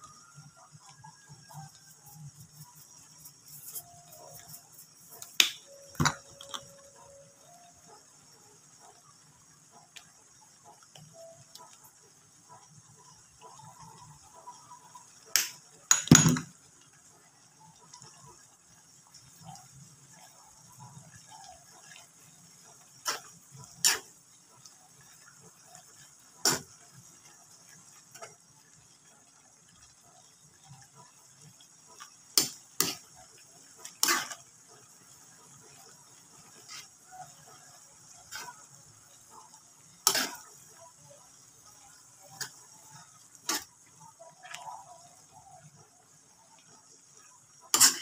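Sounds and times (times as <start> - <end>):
faint steady hiss: 0.0 - 48.0
metal spatula scraping a wok: 23.0 - 24.1, 26.4 - 26.6, 33.9 - 34.5, 40.0 - 40.8, 43.4 - 43.7, 47.7 - 48.0.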